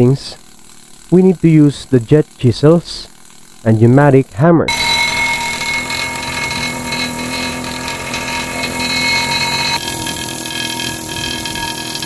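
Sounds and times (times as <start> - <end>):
pneumatic hammer chattering on pipe: 4.7 - 12.0.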